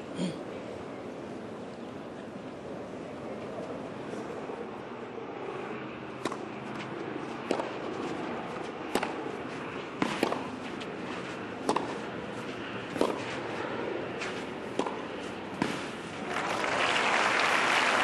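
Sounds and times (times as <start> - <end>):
steady background noise: 0.0 - 18.0
tennis ball struck with rackets: 6.2 - 6.5, 7.4 - 13.5, 14.2 - 15.9.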